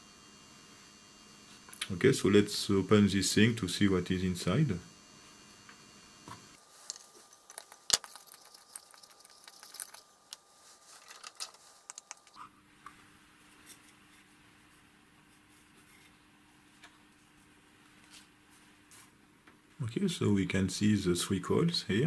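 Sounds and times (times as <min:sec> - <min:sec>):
faint steady hum: 0:00.0 - 0:22.0
small clicks taps and scrapes: 0:11.0 - 0:12.4.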